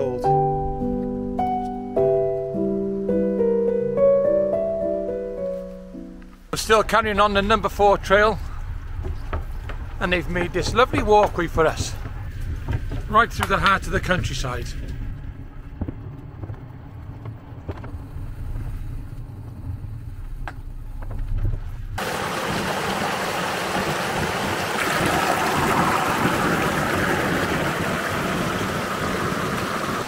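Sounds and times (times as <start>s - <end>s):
low rumble: 6.1s - 22.0s
river flowing over stones: 22.0s - 30.0s.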